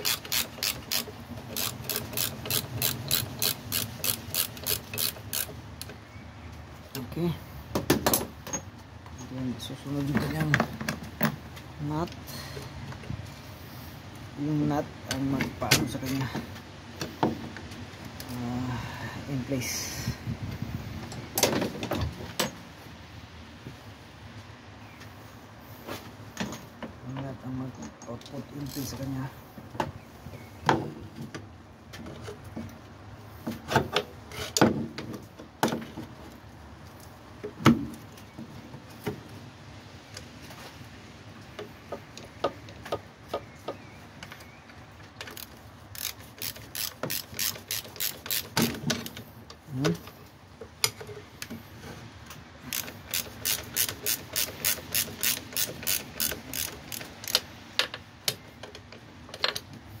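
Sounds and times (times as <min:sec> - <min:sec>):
ratchet wrench clicking: 0:00.0 - 0:05.6, 0:45.4 - 0:48.8, 0:52.7 - 0:57.5.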